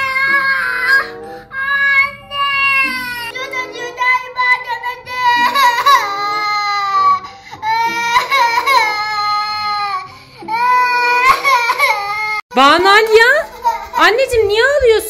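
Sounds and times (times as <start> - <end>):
young girl wailing: 0.0 - 3.5, 5.0 - 12.4.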